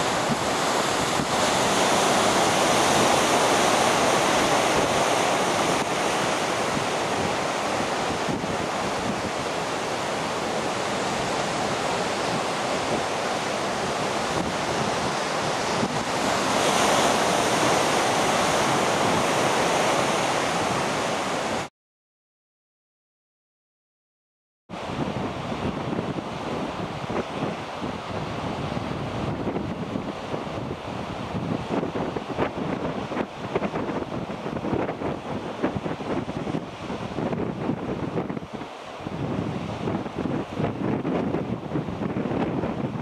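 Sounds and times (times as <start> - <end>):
rough sea surf churning: 0.0 - 21.7, 24.7 - 43.0
wind buffeting microphone: 0.0 - 21.7, 24.8 - 43.0.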